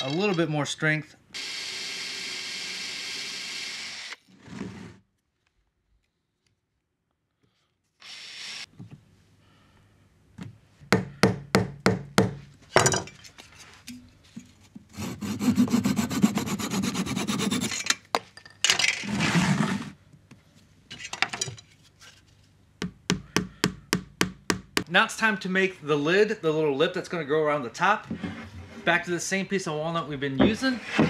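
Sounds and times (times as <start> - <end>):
drill whirring: 1.4 - 4.3, 8.0 - 8.7
hand saw cutting wood: 14.9 - 18.0, 30.6 - 31.0.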